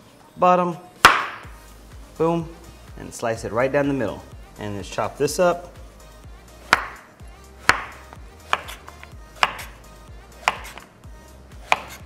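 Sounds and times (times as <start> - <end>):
knife chopping on wooden board: 1.0 - 1.5, 6.7 - 9.8, 10.4 - 10.9, 11.6 - 12.0.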